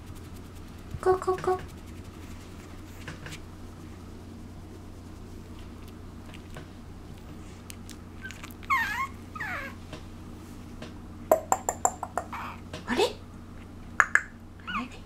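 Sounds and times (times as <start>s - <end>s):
puppy whimpering: 8.2s - 9.8s, 12.3s - 12.6s
sharp clicks: 14.0s - 14.3s.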